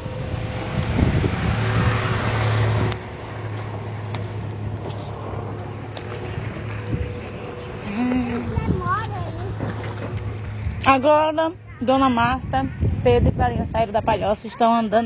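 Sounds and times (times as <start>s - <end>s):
truck driving past: 0.0s - 11.8s
low engine hum: 0.0s - 15.0s.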